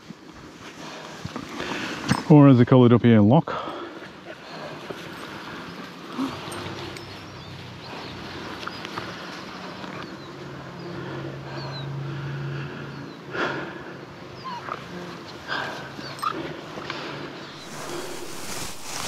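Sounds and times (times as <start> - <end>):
dog whimpering: 14.4 - 16.5.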